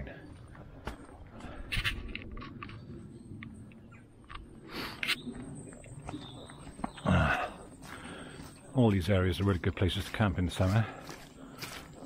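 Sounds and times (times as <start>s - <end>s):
footsteps on muddy path: 0.0s - 2.5s, 6.0s - 12.0s.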